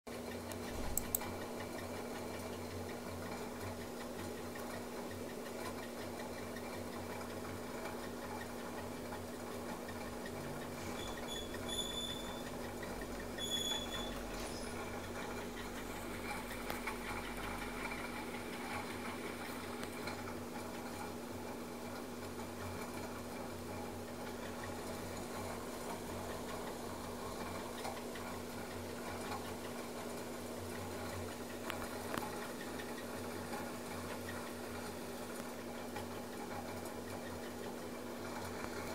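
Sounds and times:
faint ticks: 0.2 - 21.1.

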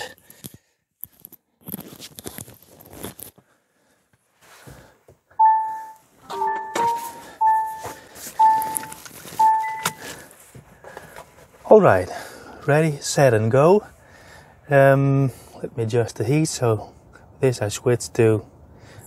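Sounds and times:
rustling and handling noises: 0.3 - 5.2, 5.8 - 11.8
electronic chime: 5.4 - 10.0
multi-tone startup melody: 5.4 - 10.0.

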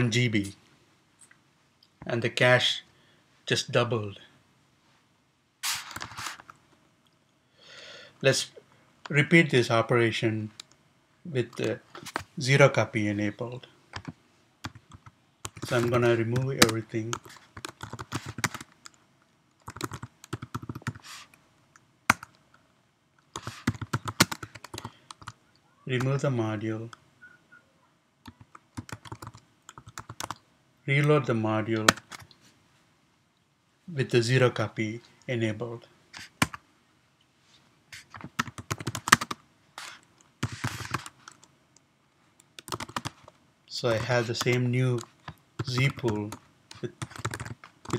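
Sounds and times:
keyboard typing: 14.0 - 19.0, 19.6 - 21.0, 22.1 - 22.4, 23.3 - 25.4, 28.2 - 30.4, 38.0 - 41.5, 42.4 - 43.3, 44.4 - 47.9
keyboard keys clicking: 19.6 - 21.0, 38.4 - 39.4, 42.6 - 43.2, 45.6 - 47.9.

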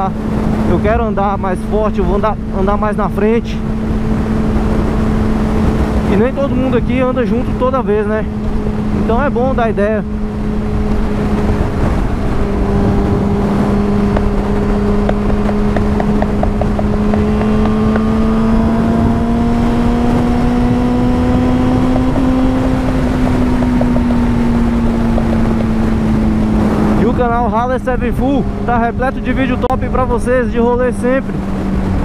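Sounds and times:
motorcycle engine cruising: 0.0 - 32.0
road noise: 0.0 - 32.0
wind noise: 0.0 - 32.0.

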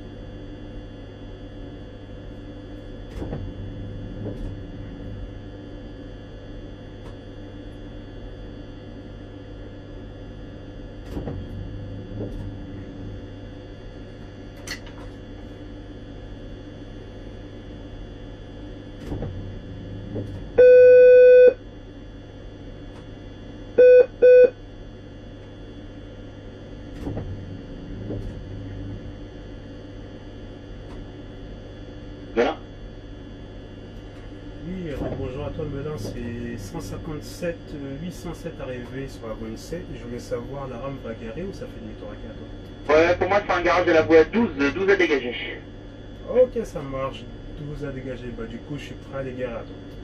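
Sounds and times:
train hum: 2.2 - 7.2, 10.0 - 17.9, 18.7 - 20.8, 25.4 - 32.6
electronic beeps: 20.6 - 21.6, 23.8 - 24.6.

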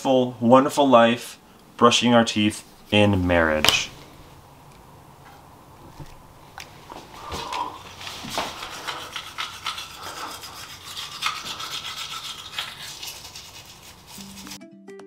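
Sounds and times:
electric toothbrush scrubbing teeth: 7.8 - 14.6.

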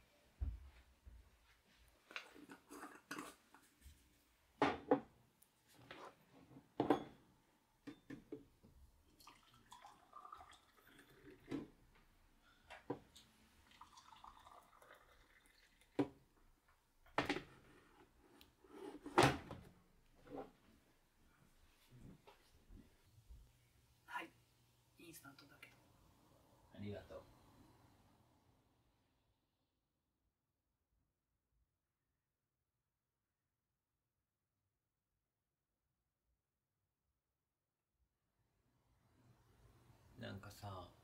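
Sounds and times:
mugs and spoon clinking: 2.4 - 3.7
water pouring: 9.0 - 11.8, 13.6 - 16.3.

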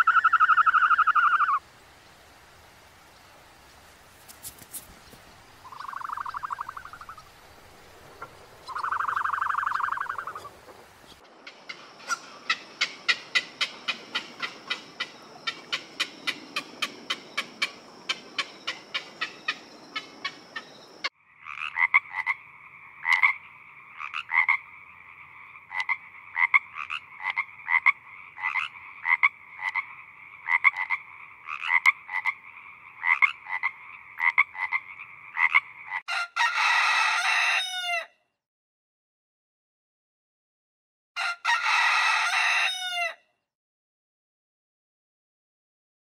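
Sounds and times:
frogs croaking: 0.0 - 3.3, 5.3 - 36.1.

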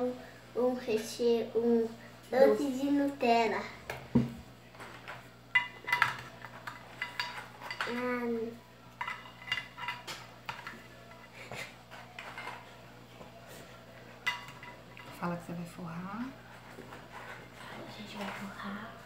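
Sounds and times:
biscuits clinking in steel bowls: 4.7 - 15.5.

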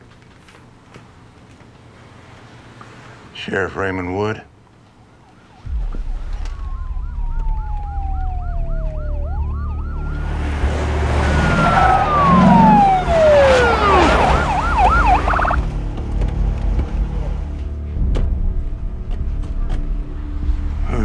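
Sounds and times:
police sirens: 4.9 - 15.8
rush of vehicle noise: 5.3 - 17.6
low rumble: 5.7 - 20.9.

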